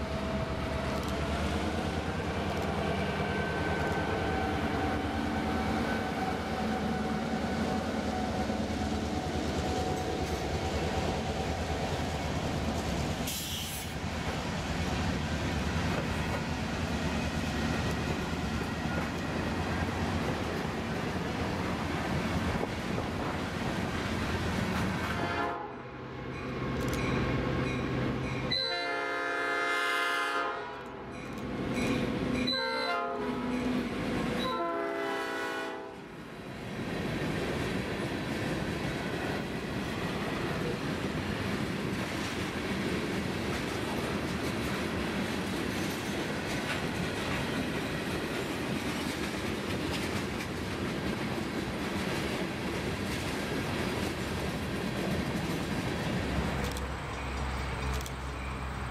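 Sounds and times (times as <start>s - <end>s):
locomotive air horn blasts: 25.1s - 25.9s, 28.5s - 30.9s, 32.5s - 33.5s, 34.4s - 36.0s
freight cars rolling on rails: 36.6s - 58.9s.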